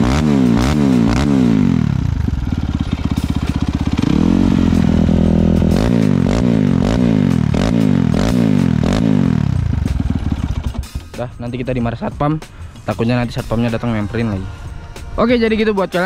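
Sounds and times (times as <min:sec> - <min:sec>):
motorcycle engine revving: 0:00.0 - 0:11.4.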